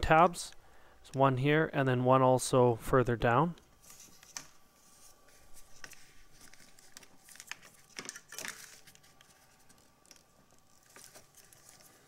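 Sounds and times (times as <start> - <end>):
gloved hands rustling: 3.8 - 12.0.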